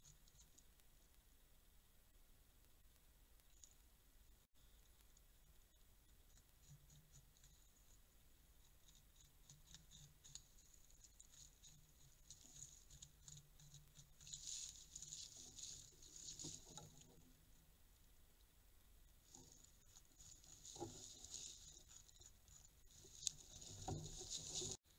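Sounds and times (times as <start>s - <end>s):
beavers gnawing crackling clicks: 4.7s - 17.2s.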